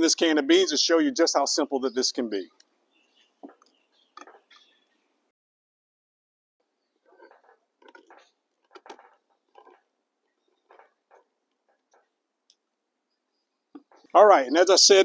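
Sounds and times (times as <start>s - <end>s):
can opener clicking and scraping: 7.2s - 9.9s.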